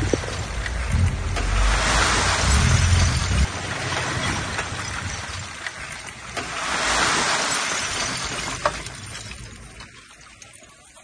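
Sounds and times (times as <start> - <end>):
truck engine: 0.0 - 7.0.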